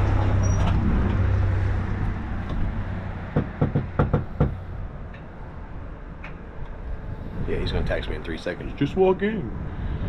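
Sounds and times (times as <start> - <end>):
low vehicle engine rumble: 0.0 - 10.0
knocking on a door: 3.4 - 4.6.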